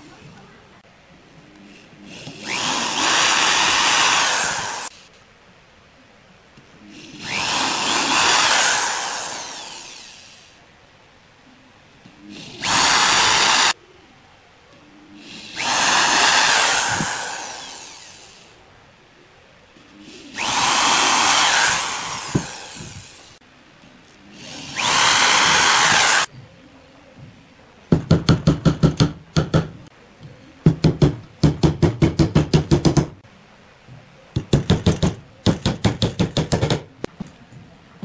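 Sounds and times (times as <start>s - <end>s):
electric drill drilling into wood: 2.1s - 4.9s, 7.0s - 10.5s, 12.3s - 13.8s, 15.3s - 18.5s, 20.1s - 23.4s, 24.4s - 26.3s
hammer driving nails into wood: 27.9s - 29.8s, 30.7s - 33.2s, 34.4s - 36.9s.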